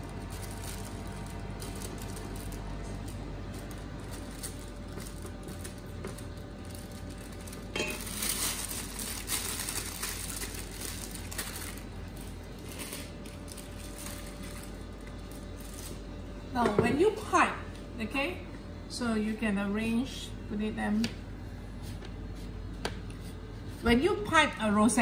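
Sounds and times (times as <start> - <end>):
plastic piping bag crinkling: 0.0 - 16.4
steady low hum: 0.0 - 25.0.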